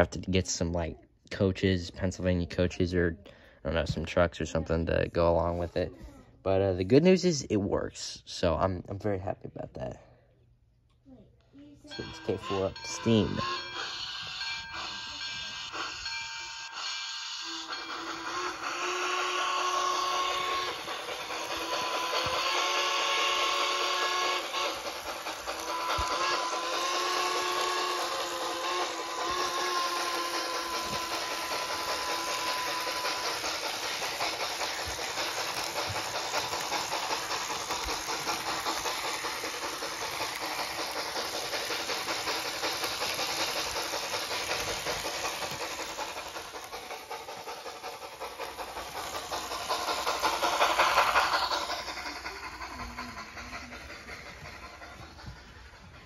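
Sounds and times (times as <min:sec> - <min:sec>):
model steam locomotive chuffing: 0:00.0 - 0:10.2, 0:11.7 - 0:56.0
long steam whistle: 0:16.6 - 0:20.9, 0:21.8 - 0:24.9, 0:25.6 - 0:33.2.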